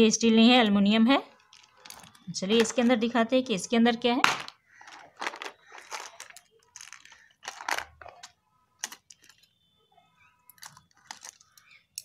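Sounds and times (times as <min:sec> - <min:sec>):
faint ringing tones: 0:01.3 - 0:03.6, 0:04.6 - 0:12.0
plastic box clicks and rattles: 0:04.3 - 0:09.5.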